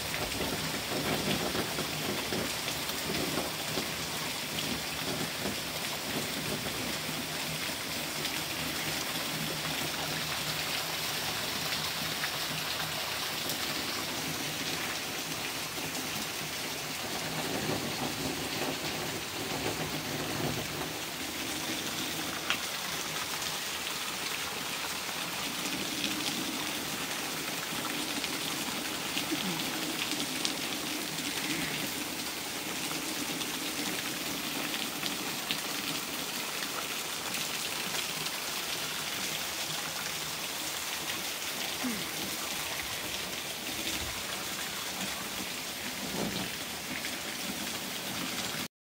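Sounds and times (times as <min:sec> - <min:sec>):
heavy rain on foliage and patio: 0:00.0 - 0:48.7
rain drop taps: 0:00.1 - 0:08.4.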